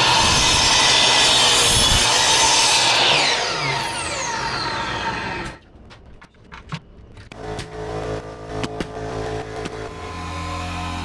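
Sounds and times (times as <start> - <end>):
miter saw cutting wood: 0.0 - 5.6, 7.3 - 11.0
saw blade winding down: 0.0 - 5.6, 9.0 - 11.0.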